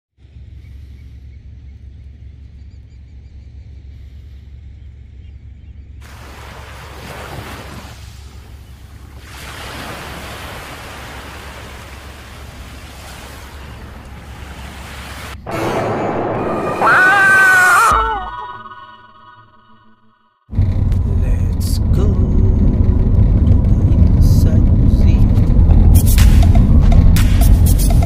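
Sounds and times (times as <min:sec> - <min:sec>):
rushing wind and surf: 0:06.0 - 0:18.2.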